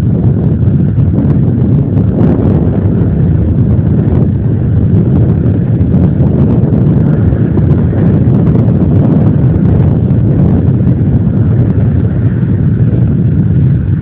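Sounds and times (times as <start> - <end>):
distant tractor engine rumble: 0.0 - 14.0
wind buffeting microphone: 0.0 - 14.0.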